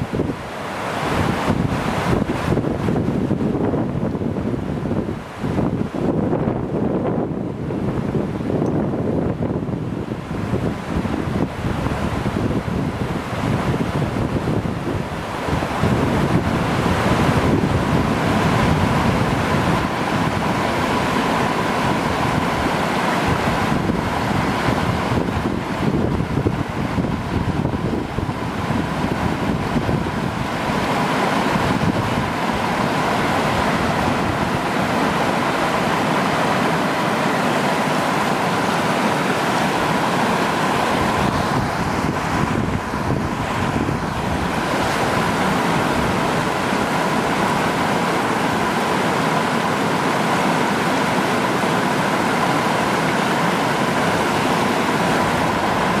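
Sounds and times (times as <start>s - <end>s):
stream water rushing: 0.0s - 56.0s.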